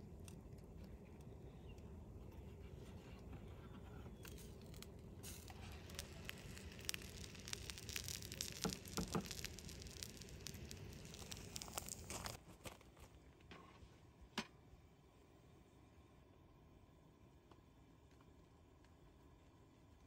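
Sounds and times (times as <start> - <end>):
meat sizzling on grill: 4.2 - 12.4.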